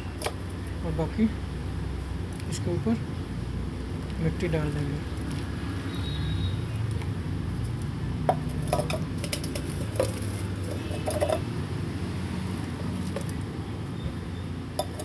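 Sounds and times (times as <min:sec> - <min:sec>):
steel mug clinking and knocking: 0:08.3 - 0:11.5, 0:14.8 - 0:15.0.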